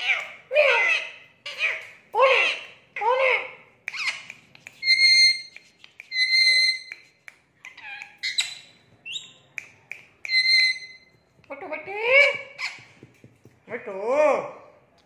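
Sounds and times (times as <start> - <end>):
parakeet squeaks and squawks: 0.0 - 2.7, 3.9 - 7.0, 7.6 - 9.4, 10.3 - 11.1, 12.2 - 13.0
parakeet talking: 0.0 - 5.3
parakeet whistling: 10.3 - 11.2.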